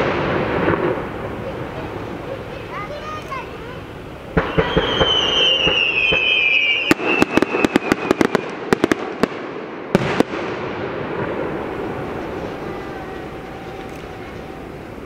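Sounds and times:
firework bangs and crackles: 0.0s - 15.0s
firework whistle: 4.3s - 9.4s, 11.1s - 15.0s.

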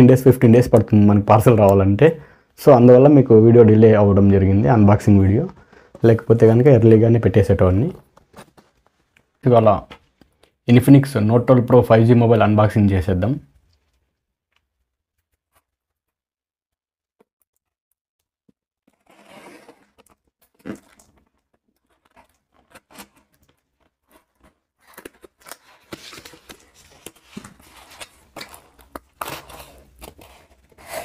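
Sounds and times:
tape tearing: 8.0s - 8.8s, 18.8s - 31.0s
blade slicing packing tape: 18.8s - 20.8s.

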